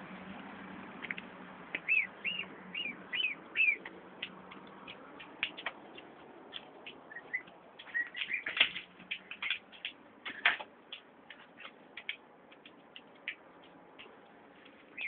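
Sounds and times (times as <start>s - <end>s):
gosling peeping: 1.8s - 3.9s, 5.5s - 8.8s.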